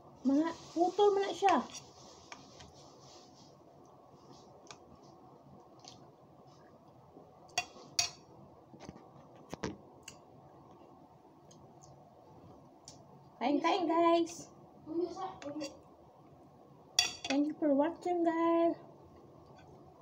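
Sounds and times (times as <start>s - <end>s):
metal spoon clinking on ceramic bowl: 17.0s - 17.4s.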